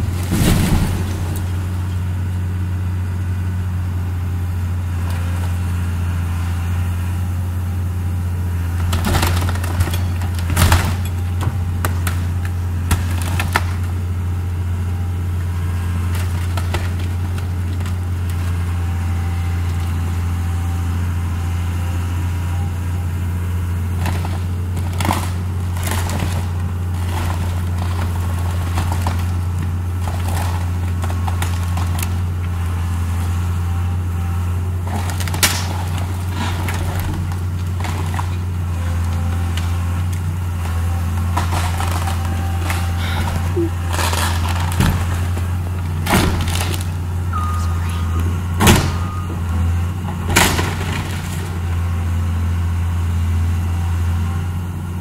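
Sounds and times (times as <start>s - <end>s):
timber cracking and breaking: 0.0s - 1.9s, 8.8s - 14.0s, 34.8s - 47.0s, 50.2s - 51.8s
excavator diesel engine running: 0.0s - 55.0s.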